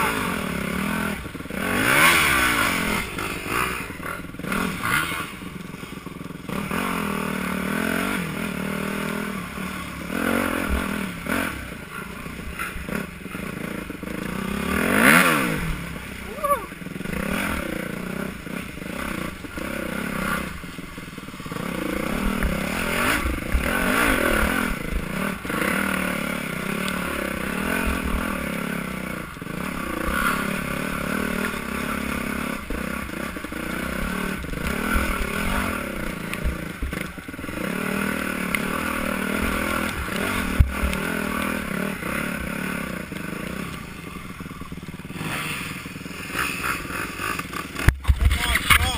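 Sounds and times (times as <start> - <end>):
dirt bike engine revving: 0.0 - 48.9
bike knocks and rattles: 47.7 - 48.9.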